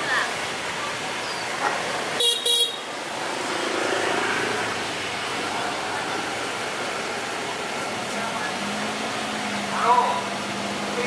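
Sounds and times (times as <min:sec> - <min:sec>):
steady background noise: 0:00.0 - 0:11.0
vehicle horn short beeps: 0:02.2 - 0:02.8.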